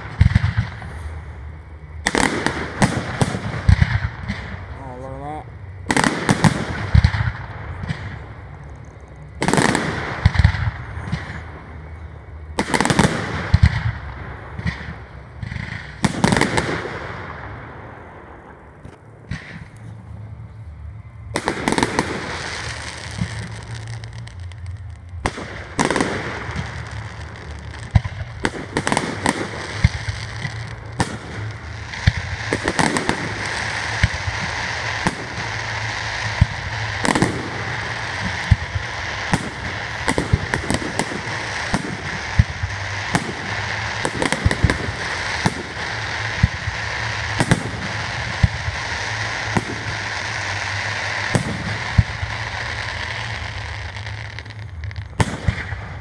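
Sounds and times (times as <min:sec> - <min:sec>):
firework bangs: 0:00.0 - 0:20.4, 0:21.0 - 0:56.0
firework crackling: 0:00.0 - 0:56.0.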